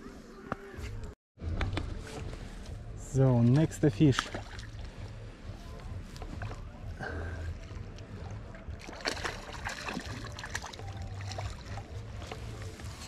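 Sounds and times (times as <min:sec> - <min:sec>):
fish splashing in water: 0:08.8 - 0:11.9.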